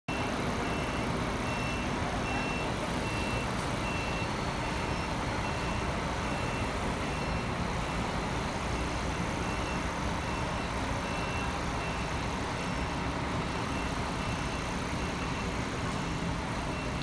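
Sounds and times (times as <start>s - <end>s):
short high beeps: 0.1s - 7.5s
bus diesel engine running: 0.1s - 17.0s.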